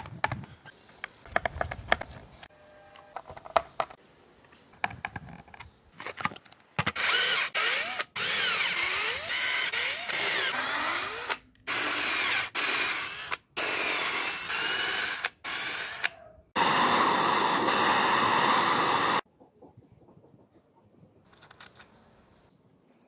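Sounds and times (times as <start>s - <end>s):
electric drill boring into plastic: 6.9s - 19.2s
butane torch hissing: 16.6s - 19.2s.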